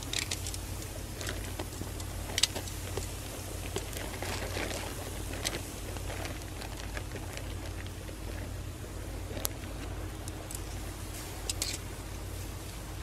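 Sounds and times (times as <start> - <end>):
charcoal crackles and pops: 0.0 - 13.0
steady low rumble: 0.0 - 13.0
chicken sizzling on grill: 10.8 - 13.0.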